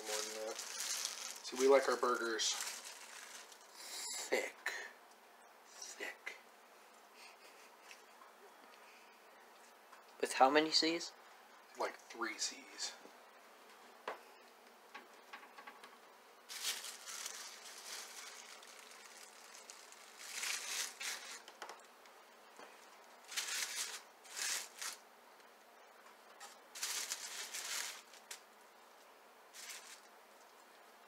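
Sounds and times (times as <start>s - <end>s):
plastic wrapping crinkling: 0.0s - 3.8s, 16.5s - 21.9s, 22.8s - 25.0s, 26.4s - 28.4s, 29.5s - 30.1s.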